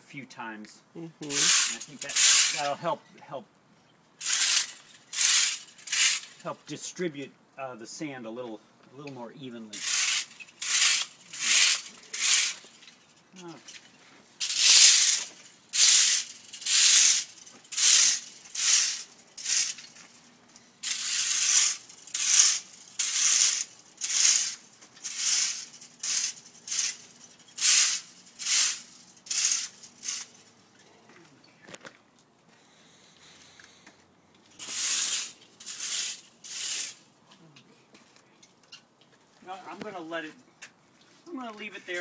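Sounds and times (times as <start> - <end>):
rake scraping through sand: 1.2 - 2.8, 4.2 - 6.6, 9.8 - 12.8, 14.4 - 20.2, 20.8 - 30.4, 34.6 - 37.0.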